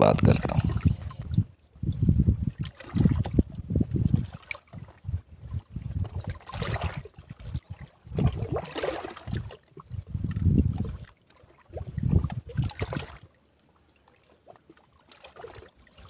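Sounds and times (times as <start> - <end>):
wind buffeting microphone: 0.0 - 8.6, 9.2 - 11.1, 11.7 - 13.1
waves lapping against rocks: 2.3 - 16.0.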